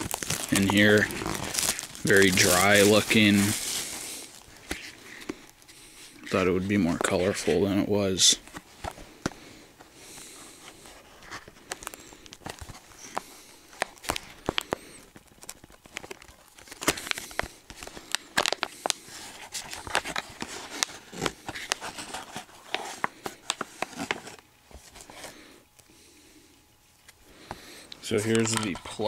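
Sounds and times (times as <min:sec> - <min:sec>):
plastic packaging crinkling: 0:00.0 - 0:07.6, 0:10.2 - 0:25.4.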